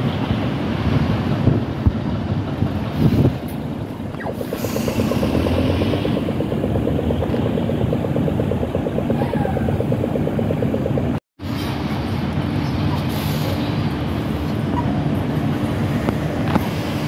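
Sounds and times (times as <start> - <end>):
traffic: 0.0 - 17.0
fast even ticking: 4.1 - 11.2.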